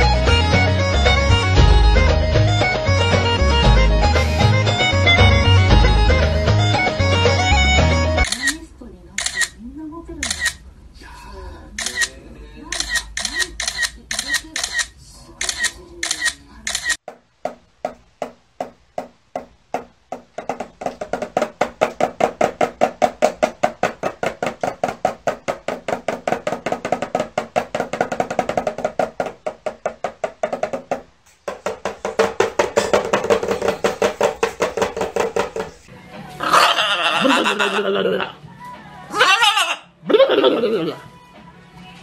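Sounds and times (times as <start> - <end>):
cockatoo beating toy drum: 17.0 - 35.9.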